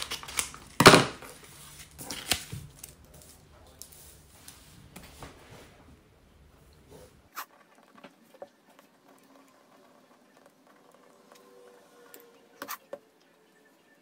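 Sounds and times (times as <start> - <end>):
paper rustling: 0.0 - 5.8.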